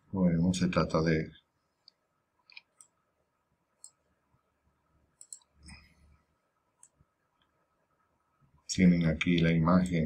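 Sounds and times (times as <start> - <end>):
computer mouse clicks: 1.8 - 3.0, 3.8 - 4.0, 5.2 - 5.9, 6.8 - 7.6.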